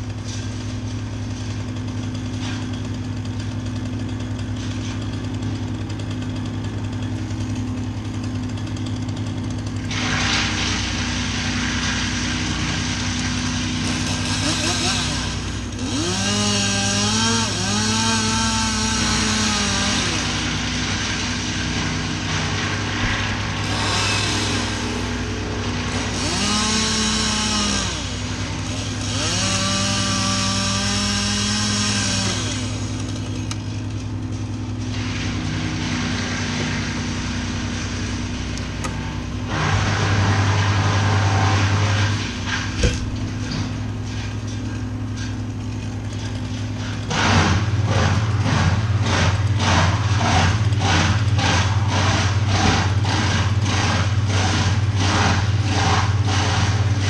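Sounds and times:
chainsaw cutting wood: 0.0 - 57.0
low drone: 20.2 - 28.7.

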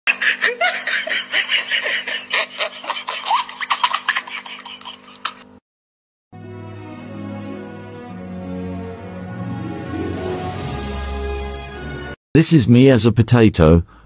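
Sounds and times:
person laughing hard: 0.1 - 5.5
background music: 6.4 - 12.2.

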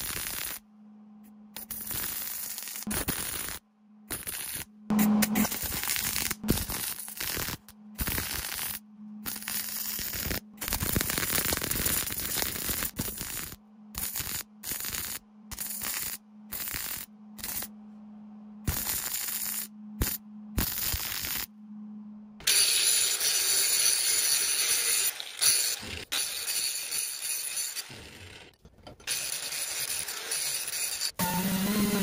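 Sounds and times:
faint steady hum: 0.6 - 1.7, 8.7 - 10.8, 13.5 - 14.6, 16.2 - 20.8, 21.5 - 22.4
welder arc crackling: 1.6 - 17.7, 18.7 - 21.5.

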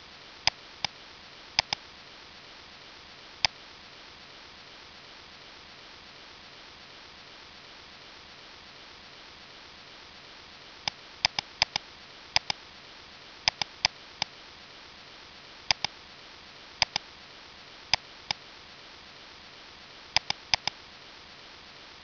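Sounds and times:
faint hiss: 0.0 - 22.0
computer mouse button clicking: 1.6 - 1.8, 11.2 - 11.8, 12.4 - 12.6, 13.5 - 13.8, 15.7 - 15.9, 16.8 - 17.0, 20.2 - 20.8.

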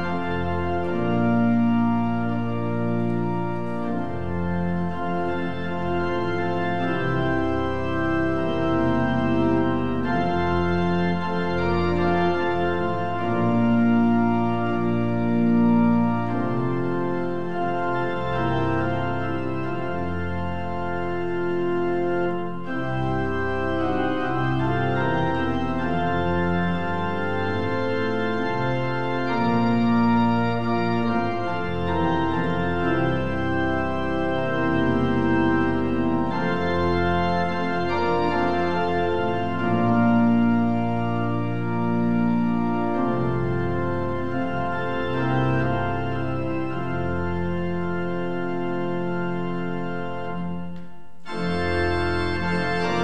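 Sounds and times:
organ playing slow chords: 0.0 - 53.0.

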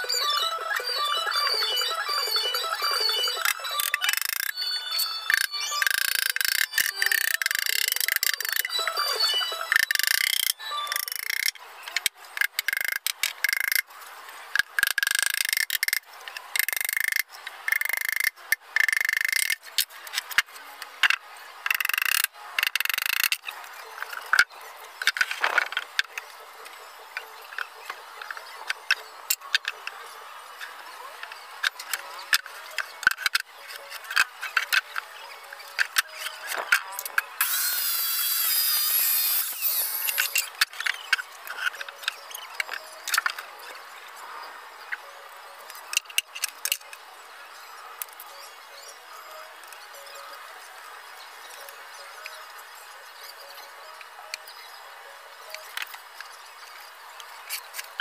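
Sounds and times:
power tool bursts: 37.4 - 40.4.

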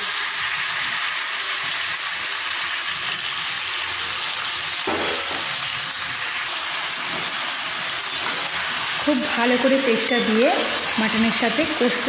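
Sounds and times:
meat and onions sizzling in oil: 0.0 - 12.0
metal spatula stirring: 8.0 - 8.8, 9.5 - 11.2.

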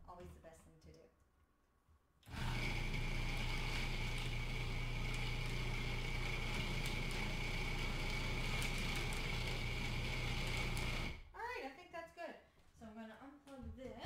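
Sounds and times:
food processor running: 2.3 - 11.3.

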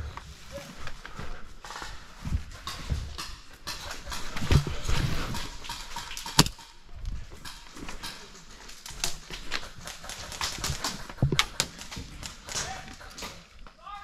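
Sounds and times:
gear crackling: 4.4 - 6.6
sharp click: 6.3 - 6.5.

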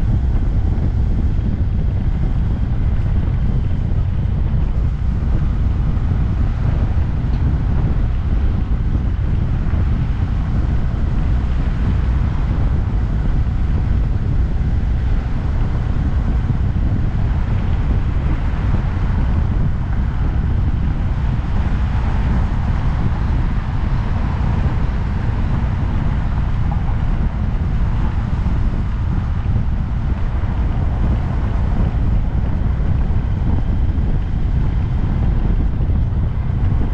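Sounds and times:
motorcycle engine running: 0.0 - 36.9
wind buffeting microphone: 0.0 - 36.9.

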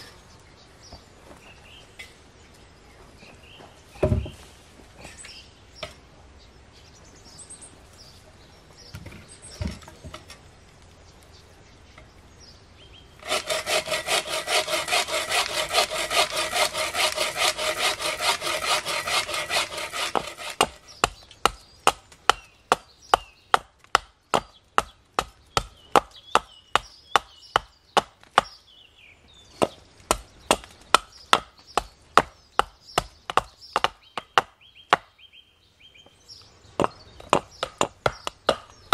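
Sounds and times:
bow saw cutting log: 13.2 - 21.1
hatchet striking wood: 13.3 - 28.6, 29.6 - 35.1, 36.8 - 38.9.

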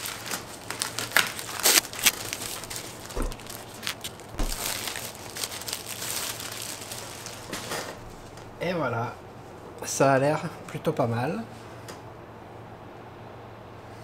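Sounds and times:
plastic bag crinkling: 0.0 - 8.6
dull soft bumps: 2.4 - 5.0.

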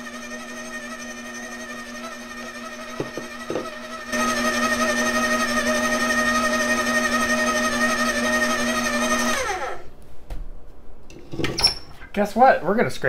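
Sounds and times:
stand mixer motor whining: 0.0 - 9.9.

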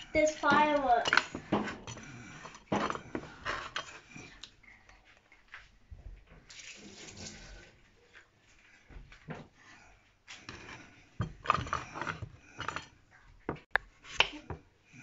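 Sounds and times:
utensils knocking on chopping board: 0.3 - 3.8.

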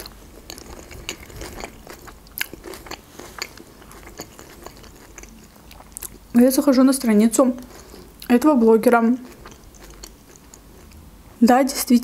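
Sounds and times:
crunchy salad chewing: 0.0 - 6.4, 9.1 - 11.1.

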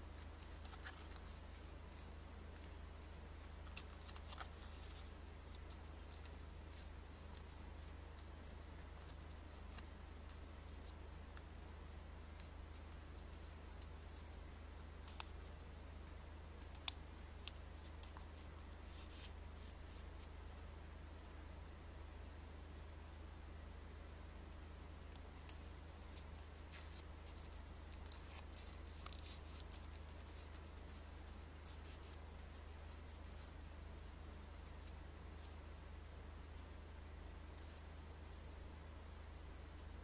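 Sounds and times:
low steady hum: 0.0 - 40.0
paper rustling and crinkling: 0.2 - 11.0, 25.4 - 33.6.

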